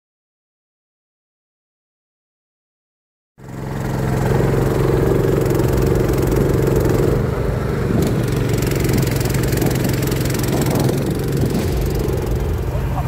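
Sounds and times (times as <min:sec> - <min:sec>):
boat engine running: 0:03.4 - 0:13.0.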